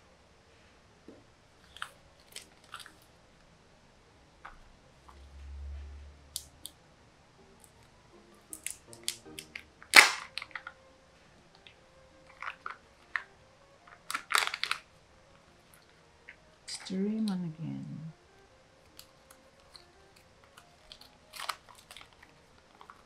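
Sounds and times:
plastic clicks and crinkles: 1.6s - 3.1s, 8.5s - 10.8s, 11.5s - 14.9s, 18.8s - 23.0s
plastic capsule snapping: 8.5s - 10.8s, 11.5s - 14.9s, 18.8s - 23.0s.

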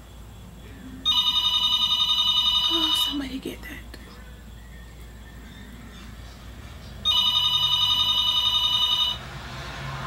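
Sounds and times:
telephone electronic trilling ring: 1.0s - 3.2s, 7.0s - 9.3s.

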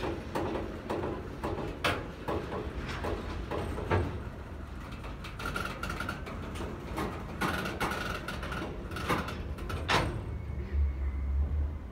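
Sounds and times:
train wagons rumbling: 0.0s - 11.9s
high-pitched wheel squeal: 10.3s - 11.8s.

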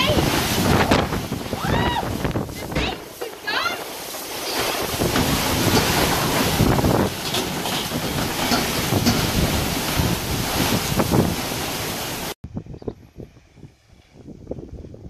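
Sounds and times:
plastic chairs knocking over: 0.0s - 11.3s
heavy rain: 0.0s - 12.4s
sea noise: 0.0s - 12.4s
wind buffeting microphone: 0.0s - 15.0s.

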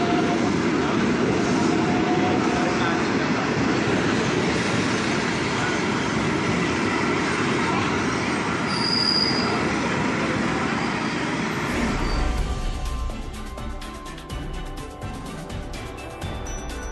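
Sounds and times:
train wheels rumbling on rails: 0.0s - 16.9s
train brief high squeal: 8.6s - 9.8s, 10.5s - 12.9s, 16.3s - 16.9s.

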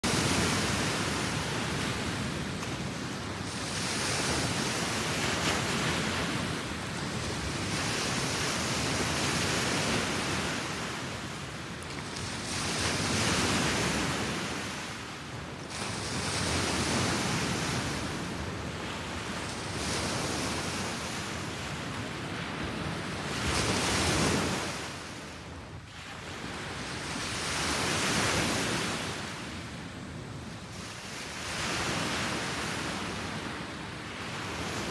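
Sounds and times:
waves on pebble beach: 0.0s - 11.4s.

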